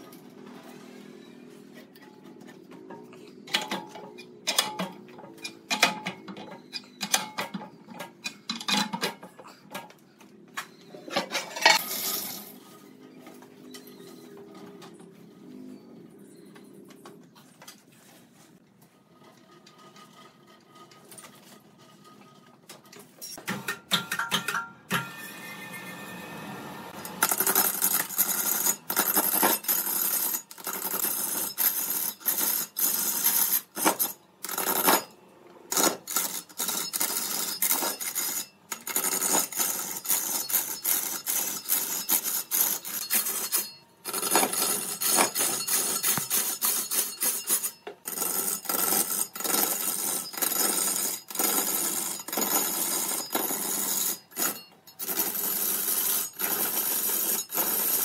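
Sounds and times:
tool scraping wood: 0:35.7 - 0:56.6.

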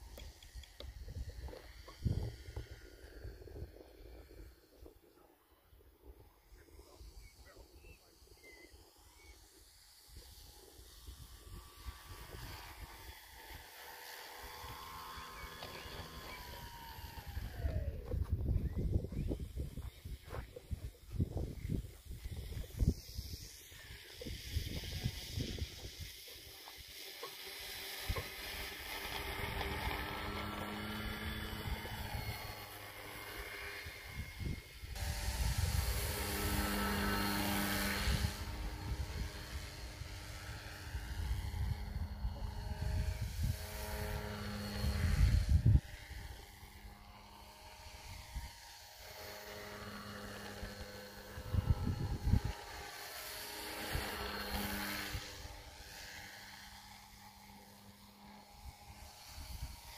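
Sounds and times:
model aircraft propeller drone: 0:00.0 - 0:59.9
wind buffeting microphone: 0:00.8 - 0:05.0, 0:15.7 - 0:26.1, 0:33.7 - 0:46.8, 0:50.6 - 0:52.9.

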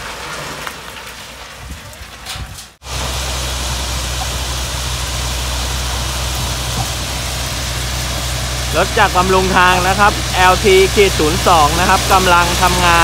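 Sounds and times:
diesel engine running: 0:02.8 - 0:13.0.

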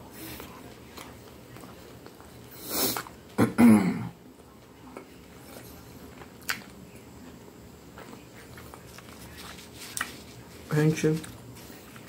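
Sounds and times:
woman clearing throat: 0:03.4 - 0:04.2.

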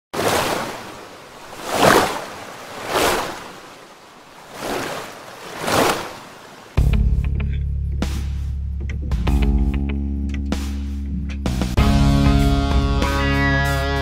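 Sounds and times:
sea waves washing in: 0:00.1 - 0:06.8.

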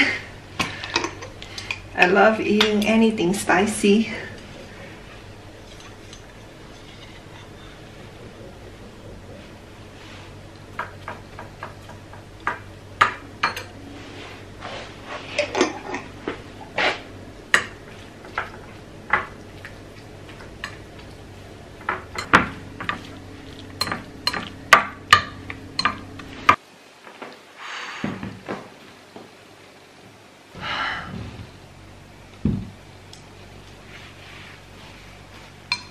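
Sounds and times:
steady low hum: 0:00.0 - 0:26.6, 0:29.9 - 0:35.9.

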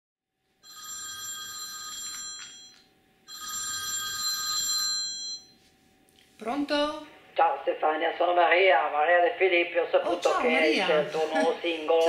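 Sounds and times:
telephone ringing: 0:00.6 - 0:05.6.

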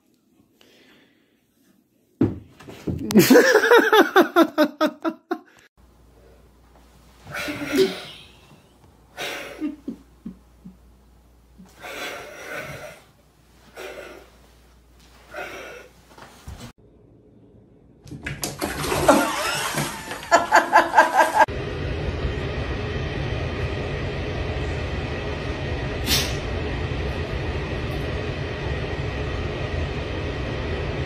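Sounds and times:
person laughing hard: 0:03.0 - 0:05.6, 0:07.3 - 0:08.6, 0:09.2 - 0:10.8, 0:19.0 - 0:21.5.

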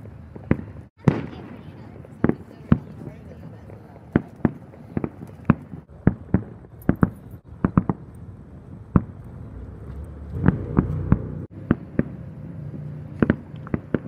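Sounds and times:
fireworks bangs: 0:00.0 - 0:14.0
low rumble: 0:05.7 - 0:14.0.

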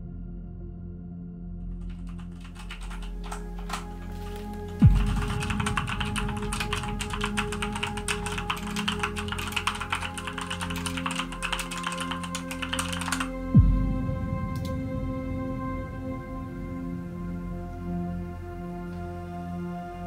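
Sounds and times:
dark droning film score: 0:00.0 - 0:20.0
typing on computer keyboard: 0:01.8 - 0:13.4
deep booming hit: 0:13.6 - 0:16.2.

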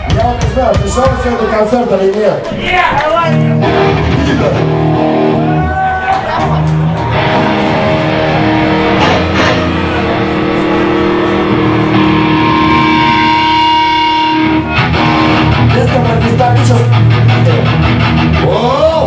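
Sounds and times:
heavy metal band playing: 0:00.0 - 0:19.0
long held electric guitar note: 0:07.1 - 0:15.7.

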